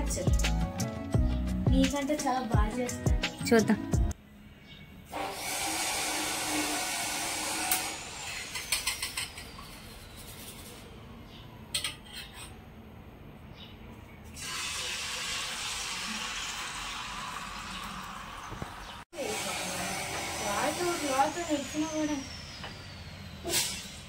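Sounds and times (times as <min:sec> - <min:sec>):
small appliance motor whirring: 0:05.1 - 0:10.9, 0:14.4 - 0:24.0
egg batter sizzling in pan: 0:14.4 - 0:19.0.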